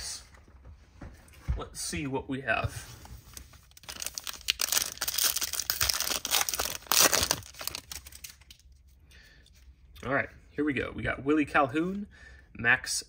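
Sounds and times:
foil pack tearing and crinkling: 0:03.7 - 0:08.4.

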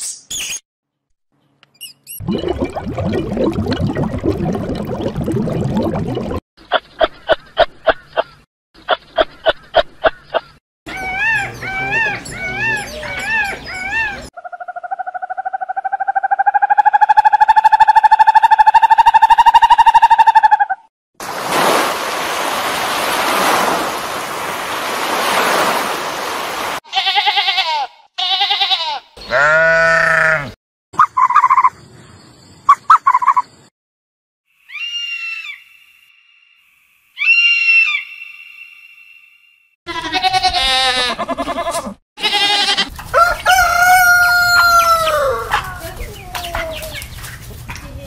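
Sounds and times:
peacock calling: 0:06.7 - 0:20.8, 0:34.6 - 0:36.1, 0:37.2 - 0:39.0
sheep bleating: 0:26.9 - 0:30.6, 0:39.9 - 0:42.9.

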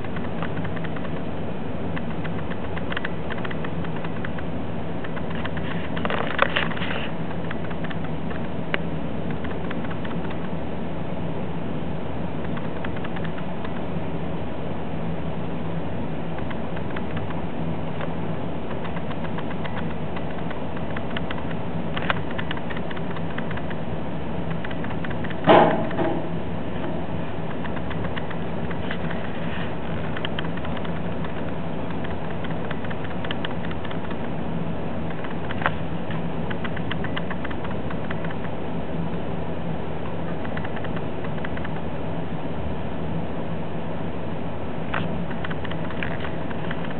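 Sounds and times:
small clicks and rattles: 0:00.0 - 0:01.3, 0:01.9 - 0:10.6, 0:12.4 - 0:13.9, 0:16.4 - 0:17.4, 0:18.0 - 0:23.8, 0:24.4 - 0:26.2, 0:26.8 - 0:34.4, 0:35.1 - 0:38.6, 0:40.0 - 0:41.9, 0:44.9 - 0:46.9.

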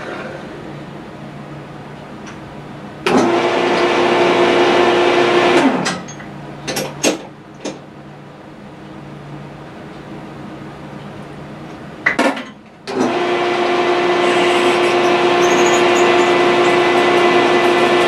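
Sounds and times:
electric drill boring brass: 0:12.9 - 0:18.0.

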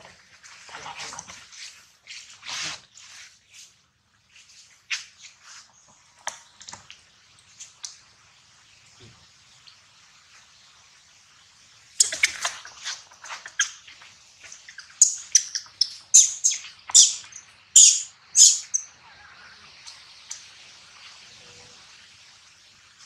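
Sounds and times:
baby monkey squealing: 0:15.0 - 0:19.6.

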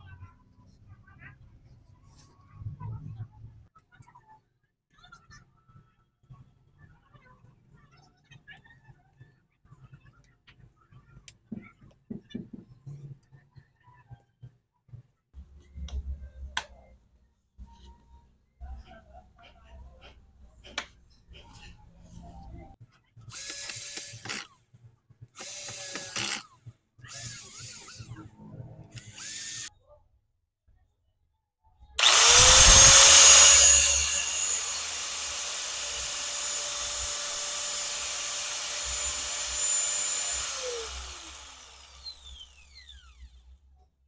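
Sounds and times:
drill driving screws: 0:23.3 - 0:24.5, 0:25.4 - 0:26.5, 0:27.1 - 0:28.0, 0:28.9 - 0:29.7, 0:32.0 - 0:43.3
angle grinder whine: 0:32.0 - 0:43.3.

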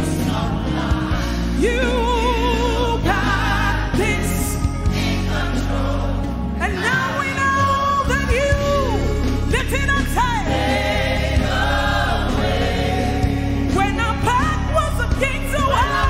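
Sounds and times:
choir and congregation singing: 0:00.0 - 0:16.0
woman singing into microphone: 0:13.7 - 0:16.0.

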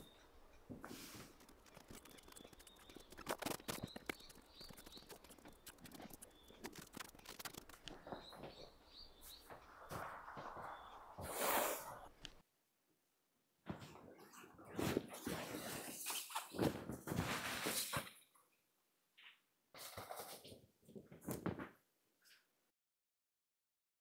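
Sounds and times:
bird chirping: 0:00.0 - 0:12.4
footsteps on tin roof: 0:00.1 - 0:11.3.

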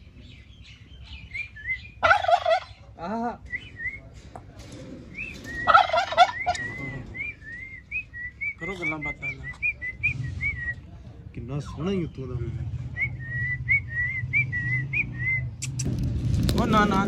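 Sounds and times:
small birds chirping: 0:00.0 - 0:04.2
turkeys gobbling: 0:01.4 - 0:03.0, 0:05.2 - 0:07.4.

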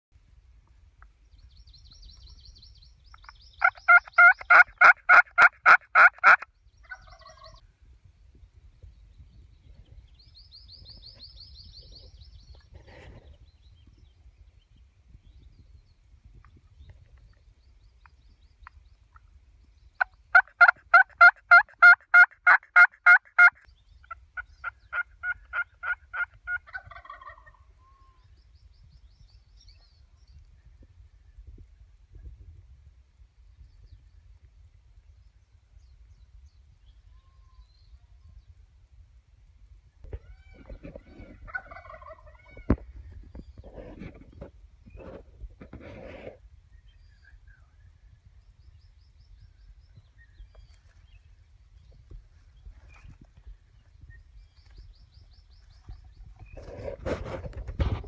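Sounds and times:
turkey call yelps: 0:03.6 - 0:07.6, 0:20.3 - 0:23.6, 0:40.1 - 0:42.8.

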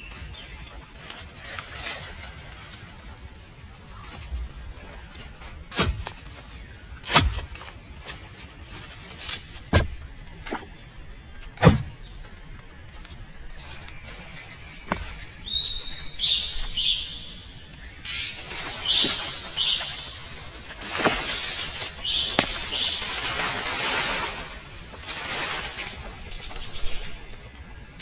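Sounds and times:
bird chirping: 0:03.9 - 0:23.8.

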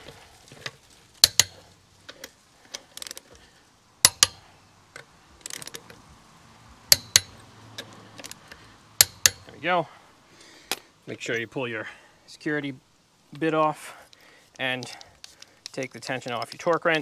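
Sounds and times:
torque wrench clicks: 0:01.2 - 0:03.2, 0:04.0 - 0:04.4, 0:06.9 - 0:07.3.

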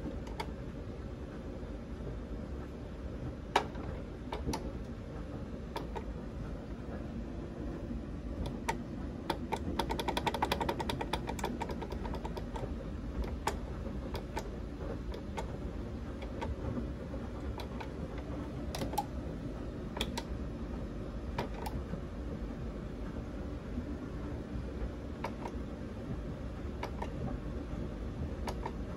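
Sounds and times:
smart switch relay clicks: 0:05.7 - 0:06.1, 0:08.4 - 0:12.6, 0:17.4 - 0:19.1, 0:19.9 - 0:20.4, 0:26.8 - 0:27.2, 0:28.4 - 0:28.9.

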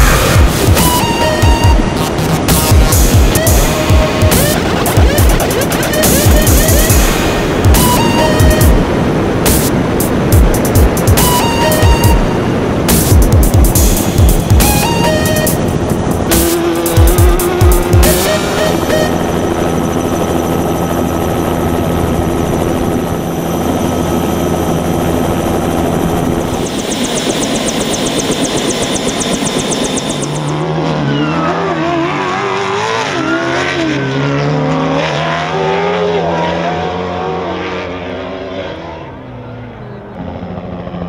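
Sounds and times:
truck engine revving: 0:00.0 - 0:20.3, 0:24.9 - 0:39.2
helicopter turbine and rotor: 0:00.0 - 0:30.7.

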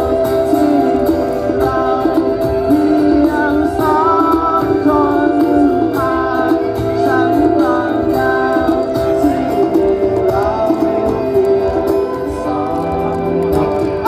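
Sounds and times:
live band playing amplified music: 0:00.0 - 0:14.0.

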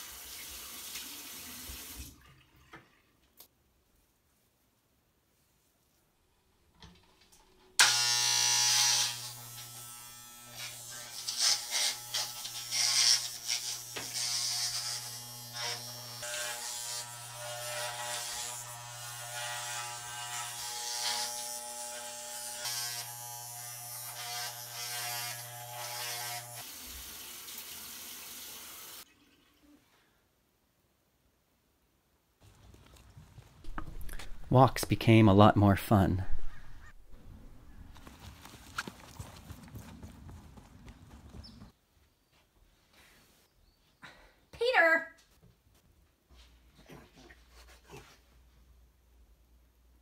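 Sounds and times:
clippers rasping through hair: 0:07.8 - 0:26.8
electric hair clippers buzzing: 0:07.8 - 0:27.7.

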